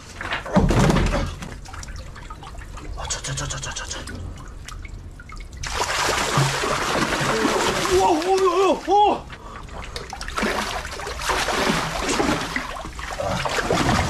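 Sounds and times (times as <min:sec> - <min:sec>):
water trickling and splashing: 0:00.1 - 0:14.0
water rushing from pump hose: 0:05.6 - 0:09.2, 0:10.3 - 0:14.0.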